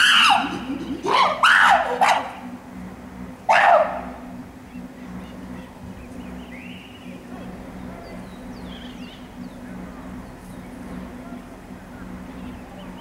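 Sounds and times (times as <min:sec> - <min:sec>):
chimpanzees barking calls: 0:00.0 - 0:02.6, 0:03.4 - 0:05.4.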